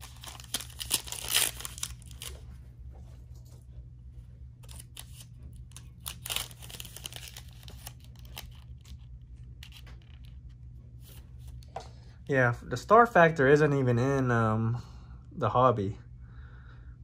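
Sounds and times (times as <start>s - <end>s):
wrapper crinkling and tearing: 0.0s - 2.4s, 4.6s - 10.3s
steady low hum: 0.0s - 17.0s.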